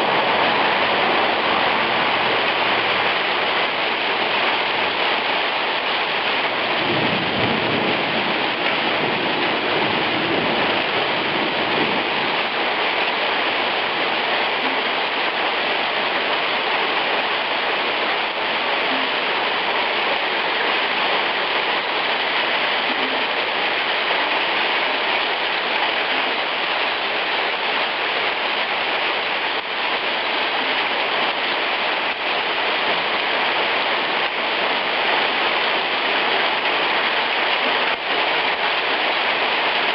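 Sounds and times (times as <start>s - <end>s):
hail and rain on stone pavement: 0.0s - 39.9s
low rumble of thunder: 6.8s - 12.3s.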